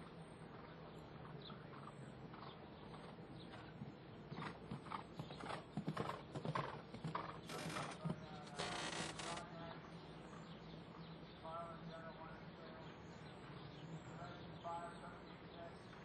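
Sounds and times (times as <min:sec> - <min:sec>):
hoofbeats on sand: 0:00.5 - 0:09.4.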